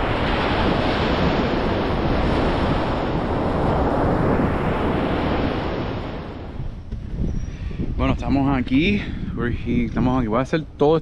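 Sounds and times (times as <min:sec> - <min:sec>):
surf breaking on beach: 0:00.0 - 0:06.6
wind on microphone: 0:00.0 - 0:11.0.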